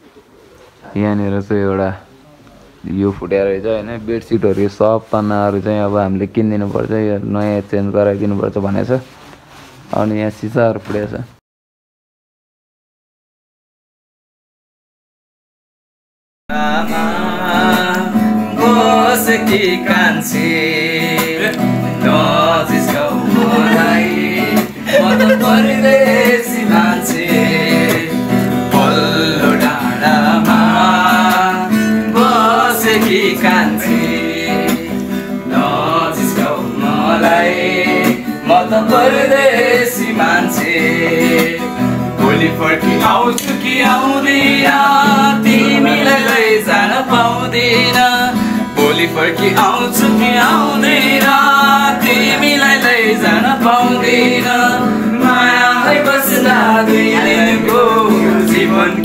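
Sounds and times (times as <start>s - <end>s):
acoustic guitar: 0.0s - 11.4s, 16.5s - 59.0s
man singing: 16.5s - 59.0s.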